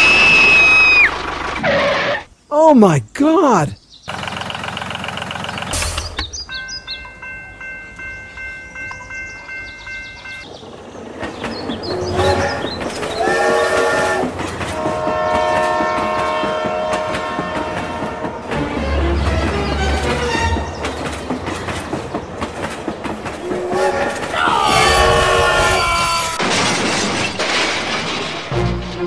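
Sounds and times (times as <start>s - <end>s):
train clattering on rails: 4.1s - 29.0s
train horn blasts: 12.0s - 12.6s, 13.2s - 18.6s, 23.4s - 25.5s.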